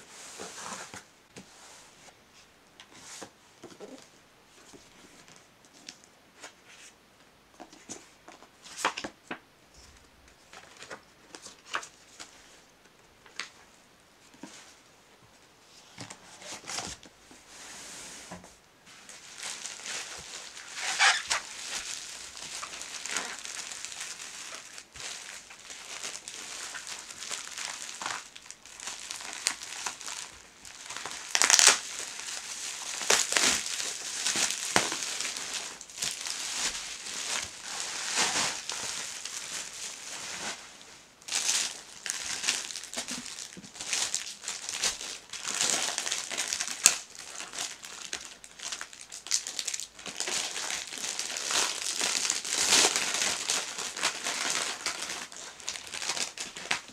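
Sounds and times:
plastic packaging crinkling: 0:19.0 - 0:56.9.

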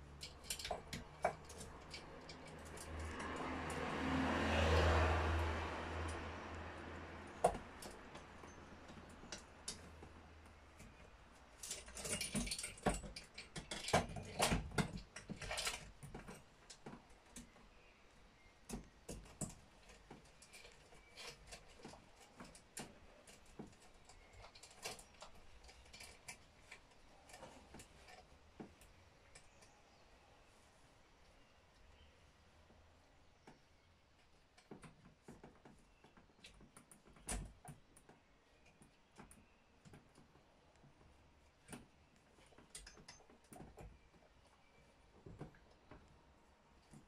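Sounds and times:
saw chain clicking and rattling: 0:00.0 - 0:03.9, 0:11.5 - 0:16.0.

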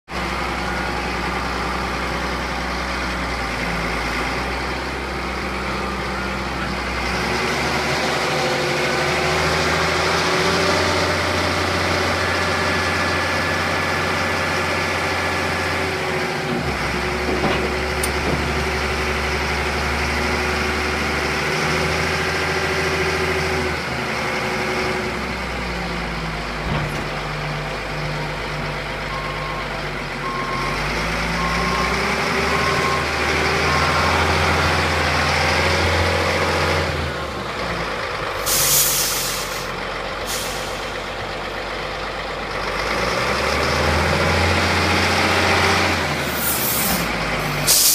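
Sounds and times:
diesel engine running: 0:00.1 - 0:47.9
air hiss bursts: 0:38.4 - 0:39.7, 0:46.4 - 0:47.9.

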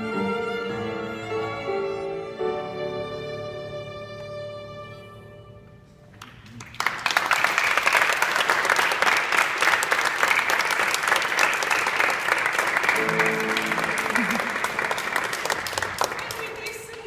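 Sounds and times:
violins playing: 0:00.0 - 0:05.8, 0:12.9 - 0:15.5
audience applause: 0:06.4 - 0:17.0.

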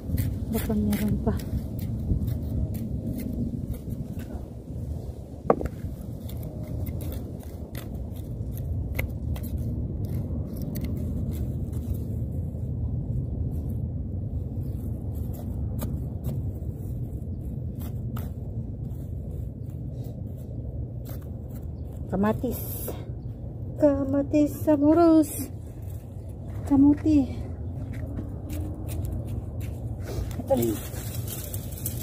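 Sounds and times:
hand tool scraping soil: 0:00.0 - 0:04.6, 0:05.6 - 0:12.1
steady low rumble: 0:00.0 - 0:32.0.

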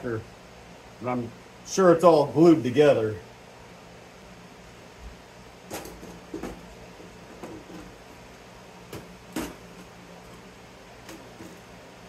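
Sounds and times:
low background hum: 0:00.0 - 0:12.0
metal clunks and knocks: 0:05.7 - 0:06.7, 0:07.3 - 0:08.0, 0:08.9 - 0:09.9.

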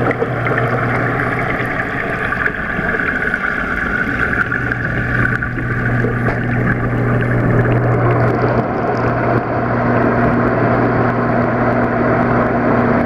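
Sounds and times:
churning water rushing: 0:00.0 - 0:13.0
pump humming: 0:00.0 - 0:13.0.

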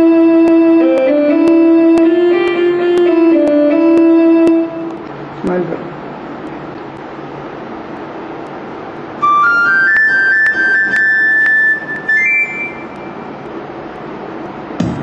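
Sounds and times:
electronic keyboard high notes: 0:00.0 - 0:05.0, 0:09.2 - 0:13.4
faint room hiss: 0:00.0 - 0:15.0.

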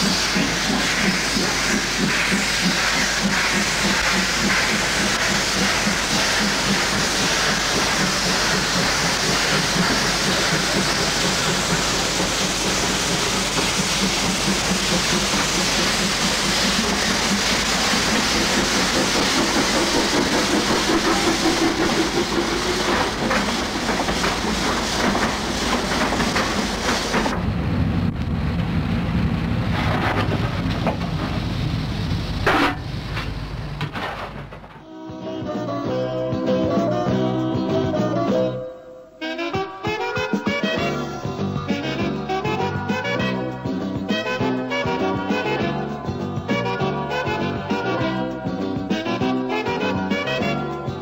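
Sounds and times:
steam hissing from locomotive: 0:00.0 - 0:27.4
train wheels clicking over rail joints: 0:00.0 - 0:27.5, 0:29.7 - 0:31.5, 0:32.4 - 0:34.9.

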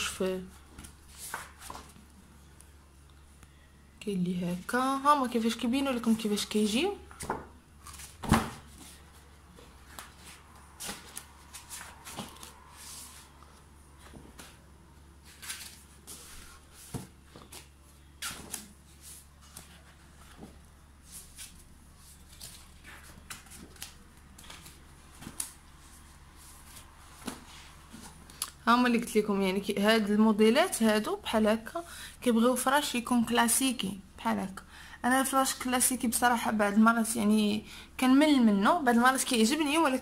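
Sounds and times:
pages turning rustles: 0:00.7 - 0:02.1, 0:07.2 - 0:14.6, 0:15.2 - 0:28.4.

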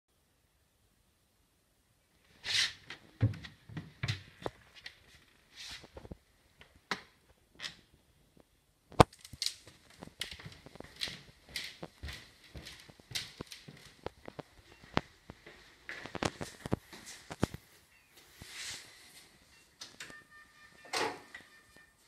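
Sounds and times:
rustling from handheld movement: 0:02.2 - 0:06.3, 0:08.4 - 0:20.3
footsteps on wooden floorboards: 0:03.2 - 0:04.7, 0:09.7 - 0:17.4.

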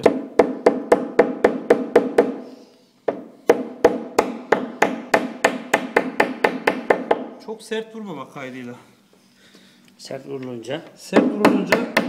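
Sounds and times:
hammer tapping dowels: 0:11.1 - 0:12.0.

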